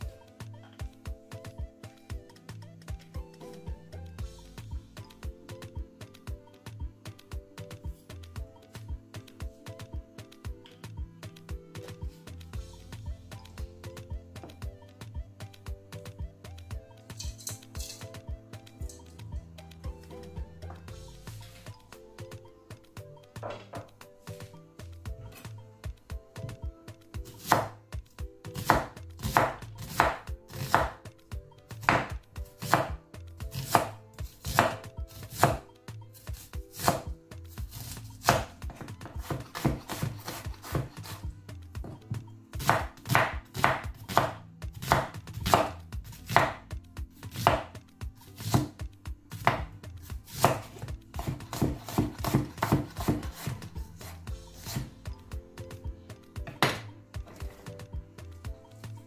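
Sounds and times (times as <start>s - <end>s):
knife knocking on cutting board: 56.4s - 57.6s.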